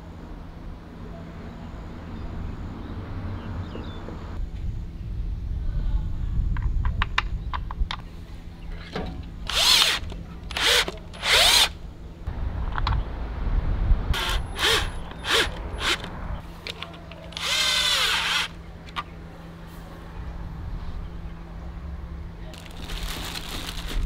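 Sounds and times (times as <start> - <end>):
cordless drill driving screws: 9.5 - 11.7, 14.2 - 16.1, 17.3 - 18.5.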